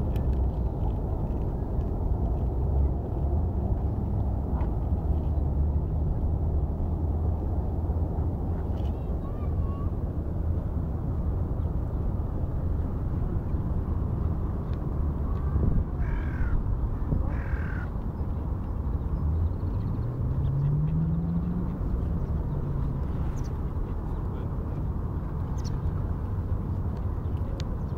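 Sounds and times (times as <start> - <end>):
steady low rumble: 0.0 - 27.9
bird cawing: 16.0 - 16.6, 17.3 - 17.9.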